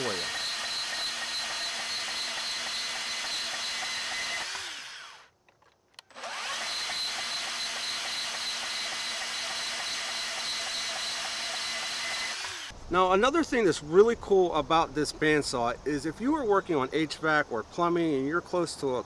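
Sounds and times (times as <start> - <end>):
band saw cutting steel: 0.0 - 5.3, 6.1 - 12.7.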